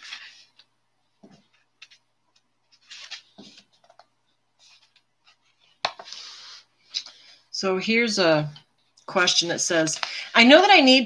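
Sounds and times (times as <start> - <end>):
book pages rustling: 0.0 - 7.4.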